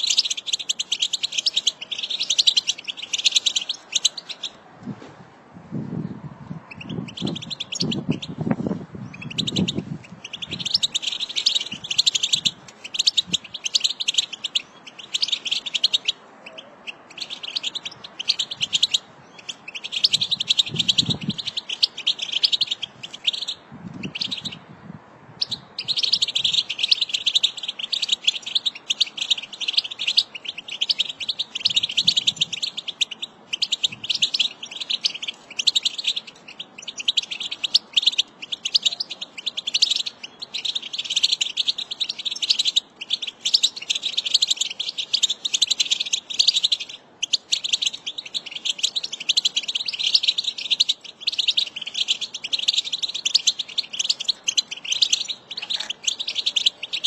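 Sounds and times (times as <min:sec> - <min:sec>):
bird twittering and warbling: 0:00.0 - 0:04.6, 0:06.5 - 0:24.7, 0:25.4 - 0:57.0.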